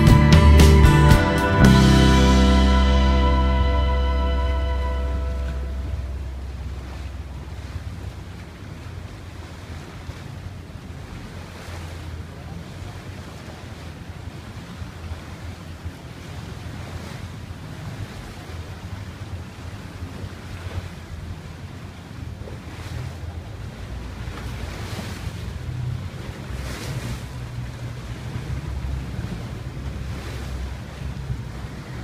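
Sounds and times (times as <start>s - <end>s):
rushing water: 0.0s - 32.0s
wind buffeting microphone: 13.2s - 32.0s.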